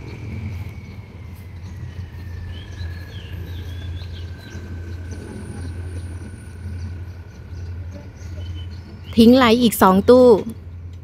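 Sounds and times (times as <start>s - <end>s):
high whine falling in pitch: 0.0s - 8.0s
birds chirping: 0.0s - 11.0s
diesel locomotive idling: 0.0s - 11.0s.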